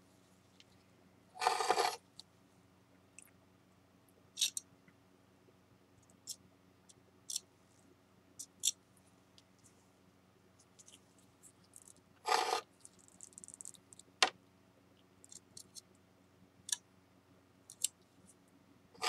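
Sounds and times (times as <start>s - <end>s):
spatula scraping: 1.4s - 2.0s.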